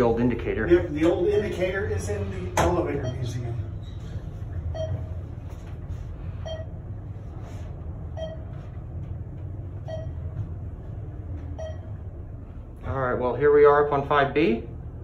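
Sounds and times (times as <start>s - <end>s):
elevator ride rumble: 0.0s - 15.0s
short beeps: 3.0s - 3.5s, 4.7s - 5.2s, 6.4s - 6.8s, 8.1s - 8.5s, 9.8s - 10.2s, 11.6s - 12.0s.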